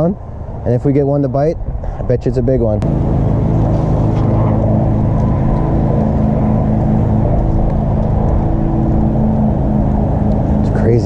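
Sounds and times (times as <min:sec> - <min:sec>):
tractor engine droning: 0:02.8 - 0:11.0.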